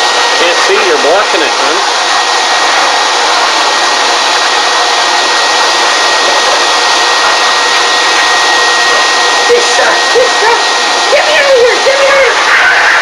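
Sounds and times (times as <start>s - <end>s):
vacuum motor running: 0.0s - 13.0s.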